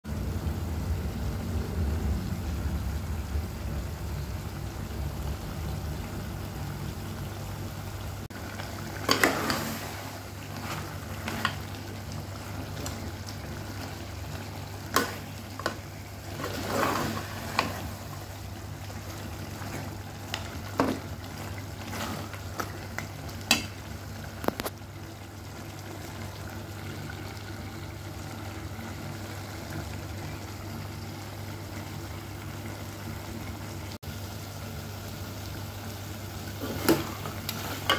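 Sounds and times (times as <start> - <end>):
steady low hum: 0.1 - 9.2
curry sizzling and simmering: 0.1 - 37.9.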